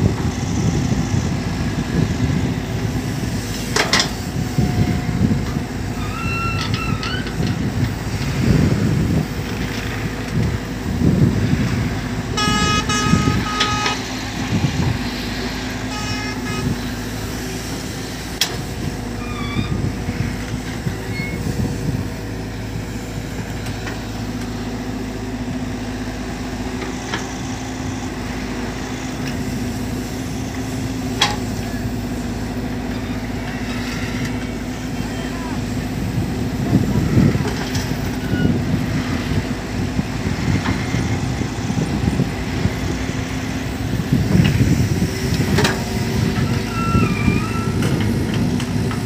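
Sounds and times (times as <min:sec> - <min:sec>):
excavator diesel engine: 0:00.0 - 0:49.0
vehicle horn honking: 0:12.4 - 0:14.0, 0:15.9 - 0:16.8.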